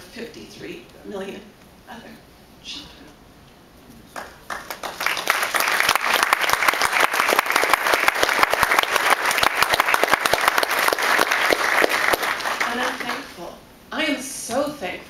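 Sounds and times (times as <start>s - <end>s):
audience applause: 4.2s - 13.3s.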